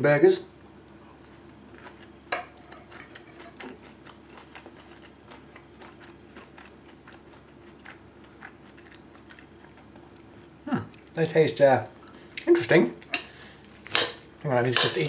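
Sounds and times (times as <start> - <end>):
faint steady hum: 0.0 - 15.0
person chewing: 0.7 - 11.1.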